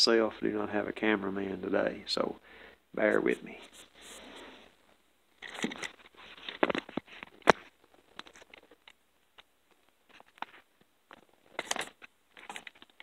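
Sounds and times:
camera handling rustles and clicks: 5.4 - 9.5, 10.1 - 13.0.

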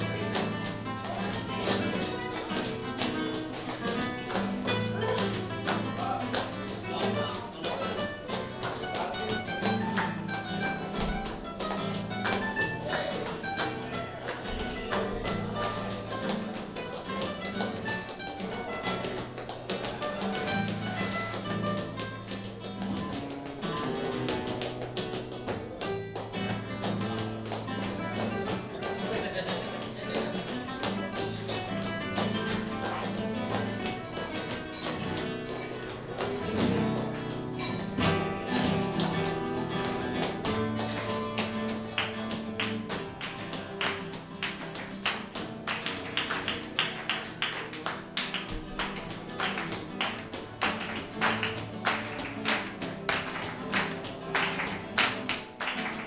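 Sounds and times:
flamenco guitars playing: 0.0 - 56.0
rhythmic hand clapping: 0.0 - 56.0.

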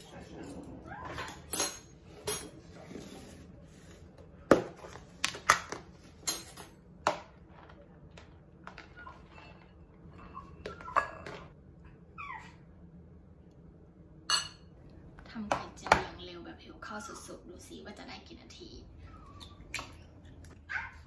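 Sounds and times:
metal cutlery set down: 6.2 - 6.8.

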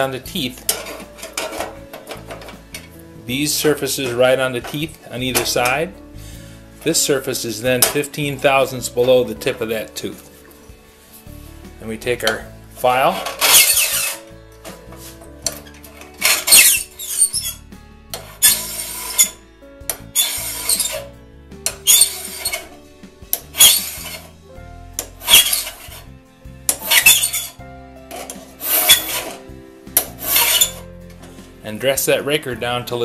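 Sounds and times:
steel file rasping on saw tooth: 13.3 - 14.2, 16.2 - 17.6, 18.2 - 19.4, 20.1 - 21.1, 21.7 - 22.7, 23.4 - 24.4, 25.1 - 26.1, 26.7 - 27.6, 28.2 - 29.4, 30.0 - 30.8.

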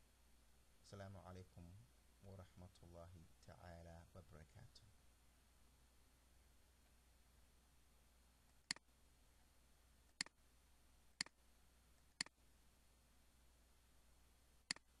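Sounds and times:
faint low hum: 0.0 - 15.0
computer mouse clicks: 10.1 - 10.4, 11.2 - 11.4, 12.0 - 12.4, 14.7 - 14.9.

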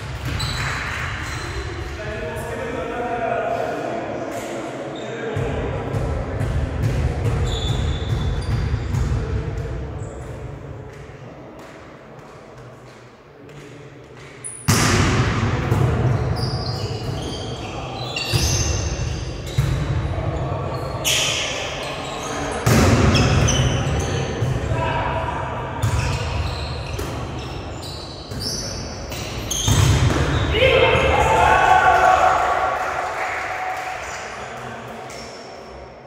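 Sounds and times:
sneakers squeaking on court floor: 0.1 - 1.8, 7.2 - 9.1, 16.0 - 24.7, 25.8 - 30.6.

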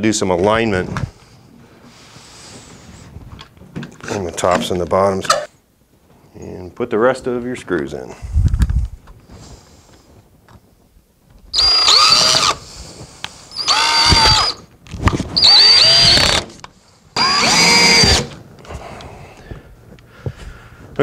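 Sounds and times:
cordless drill driving screws: 11.5 - 12.6, 13.5 - 14.6, 15.4 - 18.4.

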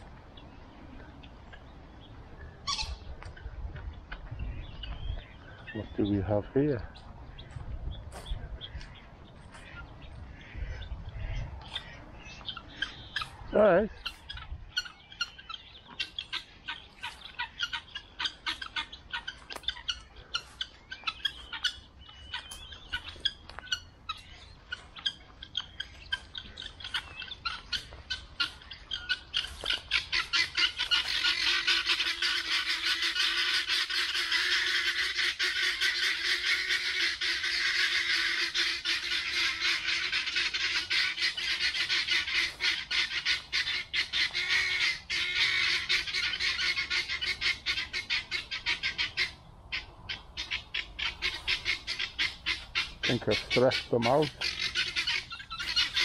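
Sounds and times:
guinea fowl alarm calls: 0.0 - 56.0.

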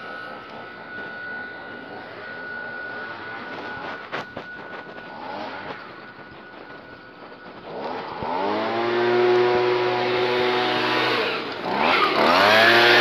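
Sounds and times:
small engine revving: 0.0 - 13.0.

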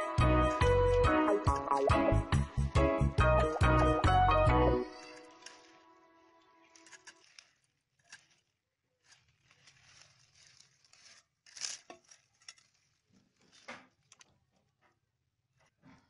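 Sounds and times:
leaves rustling: 4.8 - 13.6
stems cut against a blade: 4.9 - 5.8, 6.7 - 8.5.

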